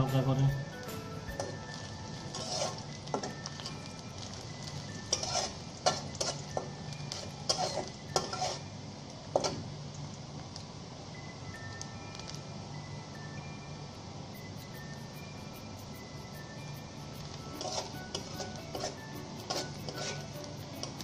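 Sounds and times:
onions sizzling in oil: 0.0 - 10.3, 14.6 - 21.0
spatula scraping metal pot: 2.3 - 2.9, 5.1 - 6.4, 7.1 - 8.6, 17.5 - 20.4.

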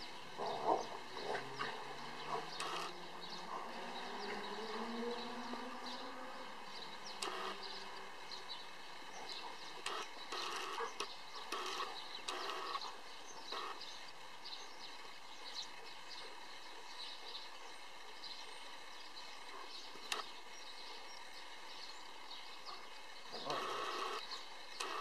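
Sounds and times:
birds chirping: 0.0 - 25.0.

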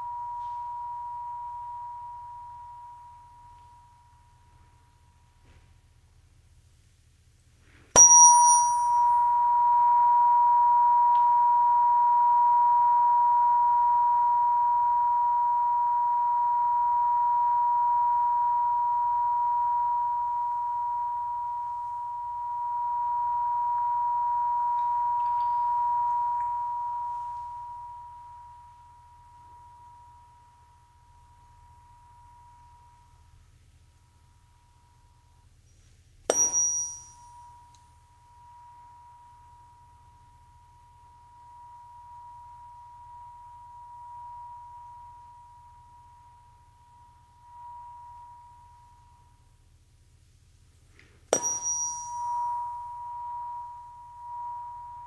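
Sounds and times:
tuning fork ringing high tone: 0.0 - 5.6, 8.0 - 50.6, 51.3 - 55.0
tuning fork struck: 0.0 - 5.6, 8.0 - 55.0.

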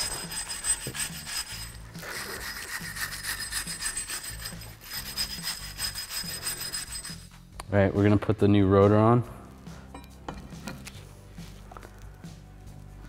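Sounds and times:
wire brush scraping metal: 0.0 - 7.4.

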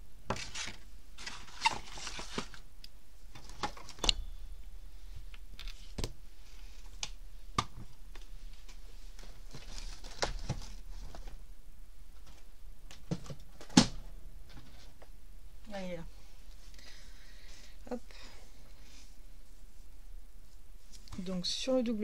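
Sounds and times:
paper or plastic rustling: 0.3 - 2.6, 8.5 - 11.4.

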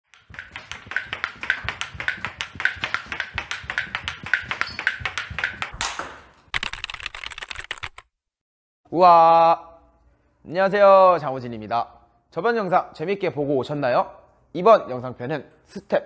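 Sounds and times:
table tennis ball clicks: 0.1 - 8.0.

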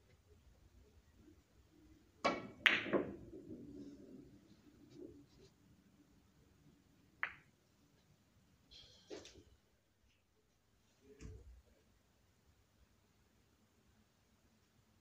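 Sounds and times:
billiard balls clicking together: 2.2 - 3.4
balls rolling on cloth: 2.2 - 5.8.

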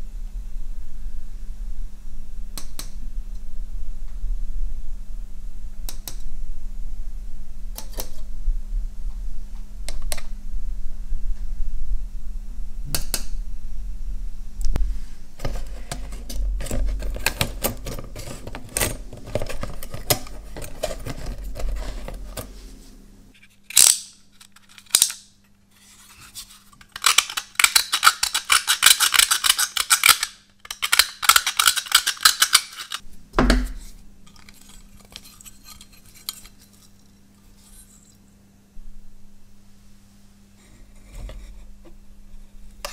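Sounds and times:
steady low hum: 0.0 - 29.7, 30.4 - 42.9
metal parts rattling: 15.4 - 22.4, 23.7 - 25.2, 26.8 - 33.0
metal parts clinking: 23.7 - 25.2, 26.8 - 33.0.

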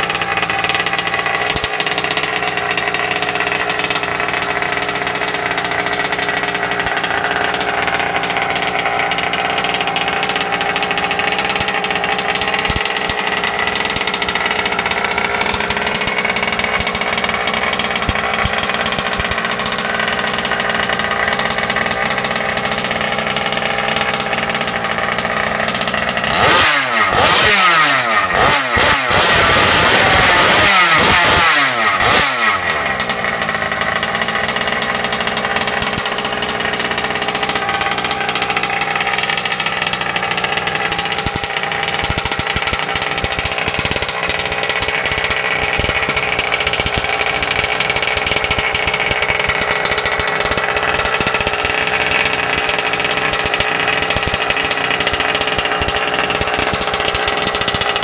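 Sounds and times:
small two-stroke engine idling: 0.0 - 58.0
engine revving in blips: 23.6 - 36.1.

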